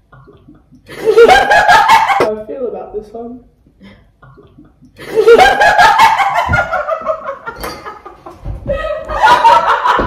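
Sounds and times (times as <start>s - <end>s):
young women laughing: 0.9s - 2.3s, 5.0s - 10.0s.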